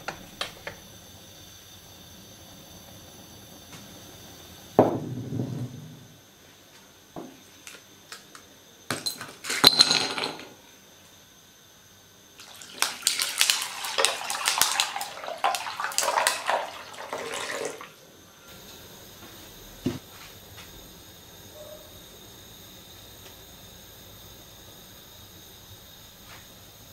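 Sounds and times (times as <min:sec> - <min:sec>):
ice clinking against glass: 0:09.0 - 0:10.5
ice cubes clattering into bowl: 0:09.0 - 0:10.5, 0:12.4 - 0:17.8
water pouring and splashing: 0:12.4 - 0:18.0.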